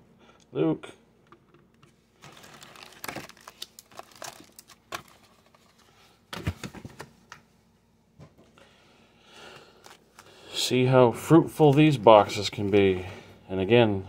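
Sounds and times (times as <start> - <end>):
foil card packs crinkling: 2.2 - 7.0, 9.6 - 10.4.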